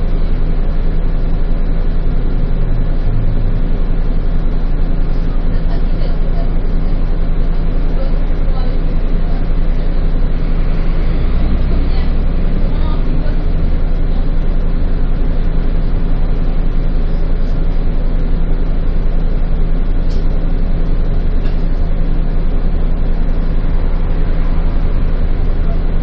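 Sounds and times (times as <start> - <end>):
bus engine running: 0.0 - 26.0
road noise: 0.0 - 26.0.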